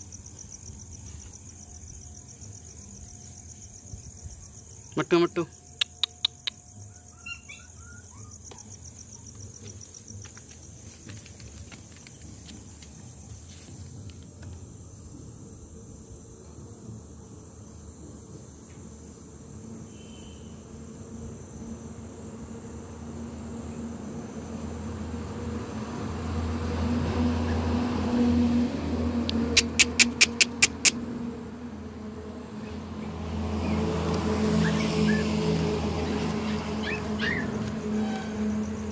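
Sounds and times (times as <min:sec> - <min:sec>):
crickets trilling: 0:00.0 - 0:38.9.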